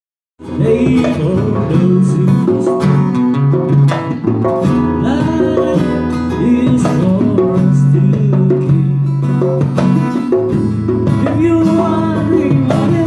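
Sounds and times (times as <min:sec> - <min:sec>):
acoustic guitar playing: 0:00.4 - 0:13.0
hand drum beating: 0:00.4 - 0:13.0.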